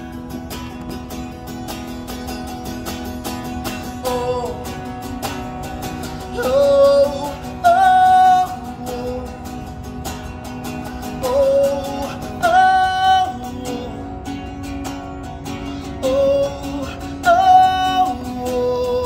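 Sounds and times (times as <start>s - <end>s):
acoustic guitar strumming: 0.0s - 19.0s
man singing: 3.8s - 5.2s, 5.9s - 9.8s, 11.0s - 14.6s, 15.7s - 19.0s.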